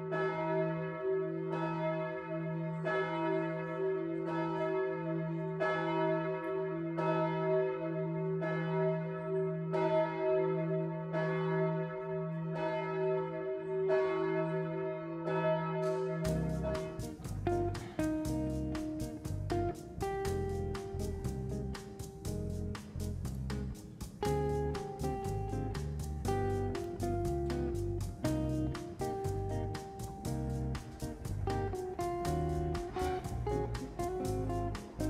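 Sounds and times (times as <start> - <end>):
large church bell tolling: 0.0 - 22.0.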